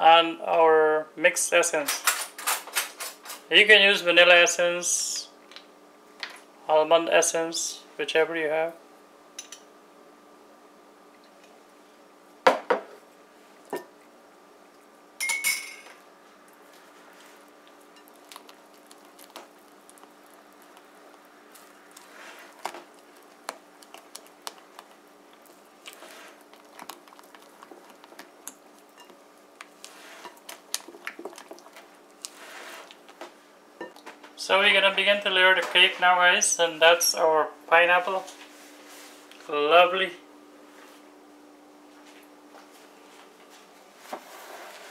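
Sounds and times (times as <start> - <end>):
spatula stirring thick batter: 16.6 - 33.3.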